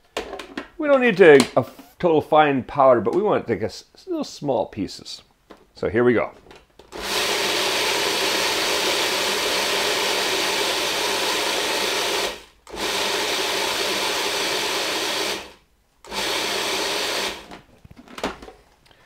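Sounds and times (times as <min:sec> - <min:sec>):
food processor chopping: 0:06.9 - 0:17.6.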